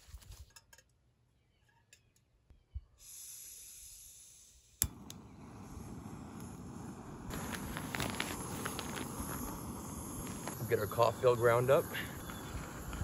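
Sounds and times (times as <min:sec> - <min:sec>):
gas hissing from stove valve: 0:03.0 - 0:13.0
burner flame rushing: 0:03.6 - 0:13.0.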